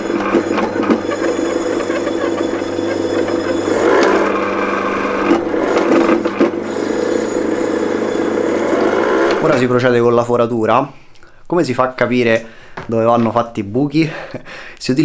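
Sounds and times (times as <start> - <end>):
blade scraping leather: 0.0 - 4.4
skiving machine motor humming: 0.0 - 9.6.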